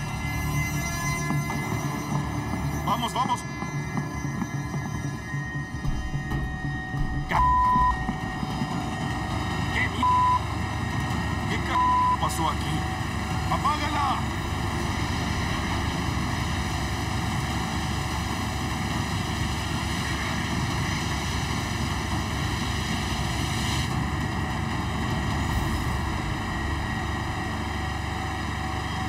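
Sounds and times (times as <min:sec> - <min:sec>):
alarm sounding: 0:00.0 - 0:10.8, 0:11.4 - 0:18.4
low machinery rumble: 0:12.4 - 0:29.0.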